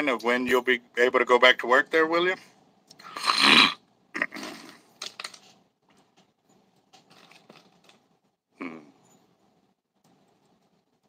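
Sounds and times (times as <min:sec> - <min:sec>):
person humming: 0:08.6 - 0:09.0.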